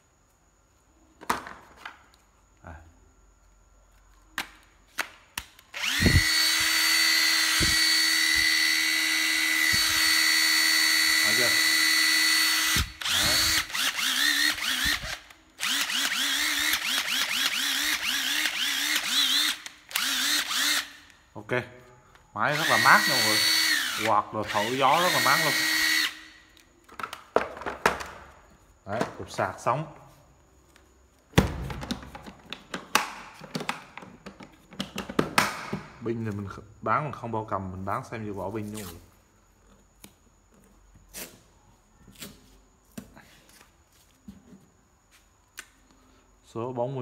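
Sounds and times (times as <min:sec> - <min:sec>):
cordless driver motor whining: 0:05.7 - 0:21.0, 0:22.6 - 0:26.2.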